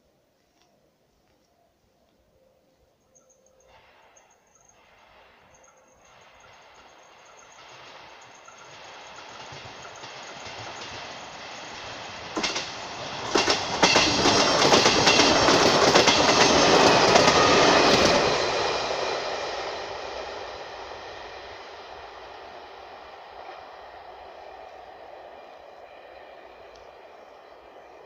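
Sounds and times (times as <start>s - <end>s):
train wheels clattering on rails: 3.9s - 24.2s.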